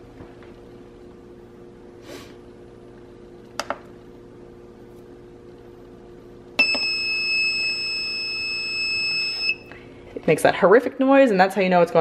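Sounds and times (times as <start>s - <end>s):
long high-pitched electronic beep: 6.6s - 9.6s.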